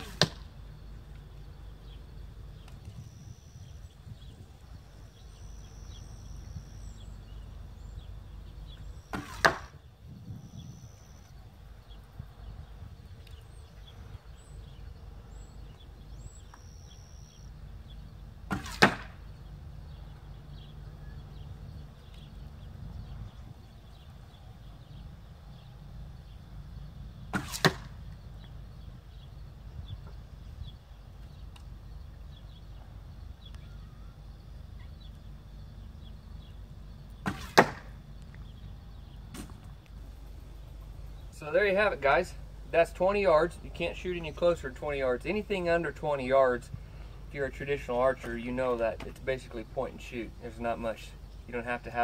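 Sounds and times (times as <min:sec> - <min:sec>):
arrow striking foam target: 0:00.0 - 0:00.5, 0:09.1 - 0:09.8, 0:18.5 - 0:19.2, 0:27.3 - 0:28.0, 0:37.2 - 0:38.0, 0:39.3 - 0:39.7.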